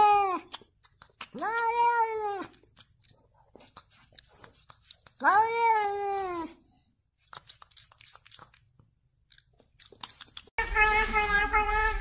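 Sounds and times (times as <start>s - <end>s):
cat meowing: 10.6s - 12.0s.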